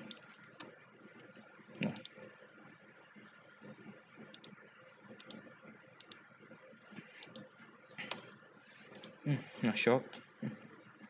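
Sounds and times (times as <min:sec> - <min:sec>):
keyboard and mouse clicks: 0:00.0 - 0:02.2, 0:04.3 - 0:04.6, 0:05.2 - 0:05.4, 0:06.0 - 0:06.2, 0:08.9 - 0:09.2
faint steady hum: 0:00.0 - 0:11.0.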